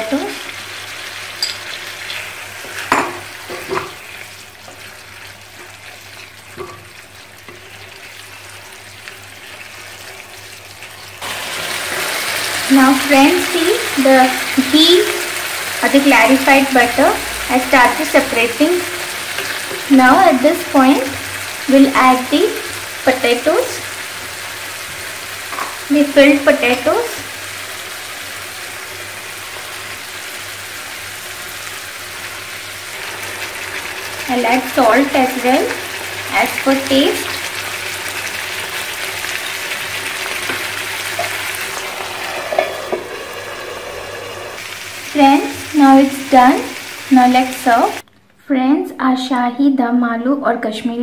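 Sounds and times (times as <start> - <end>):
gravy sizzling in a frying pan: 0.0 - 48.0
wooden spatula scraping pan: 40.4 - 44.6.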